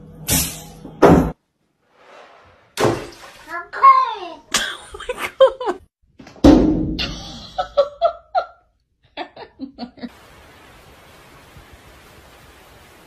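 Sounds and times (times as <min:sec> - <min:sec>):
loud thump: 0:00.4 - 0:01.4, 0:06.4 - 0:07.0
people laughing: 0:09.2 - 0:10.1
steady hiss: 0:10.1 - 0:13.0.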